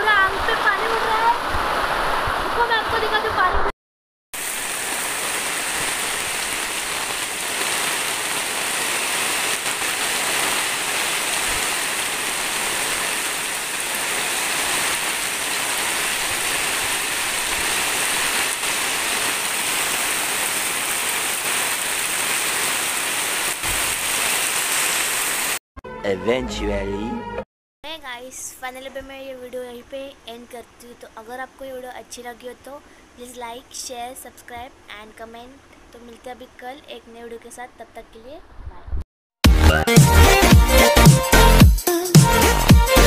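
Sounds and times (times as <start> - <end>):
heavy rain pouring: 0.0 - 3.5, 4.4 - 25.6.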